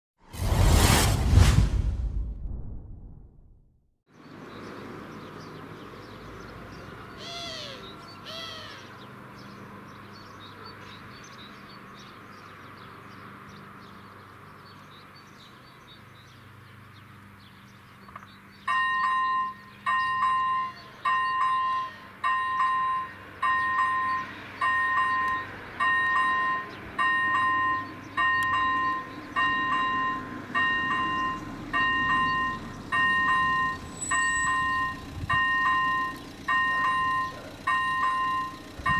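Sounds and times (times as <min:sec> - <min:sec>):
bird calling: 0:06.8 - 0:09.1
level crossing bell dinging: 0:18.7 - 0:38.9.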